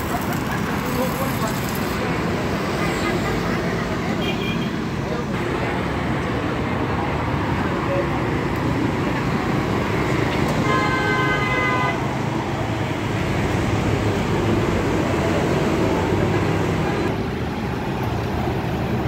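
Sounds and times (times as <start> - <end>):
street traffic noise: 0.0 - 19.0
vehicle horn: 10.6 - 12.0.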